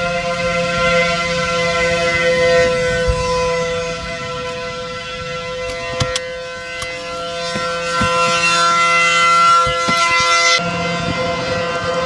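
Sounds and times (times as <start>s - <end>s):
warning siren steady tone: 0.0s - 12.0s
sharp knocks: 5.7s - 10.6s.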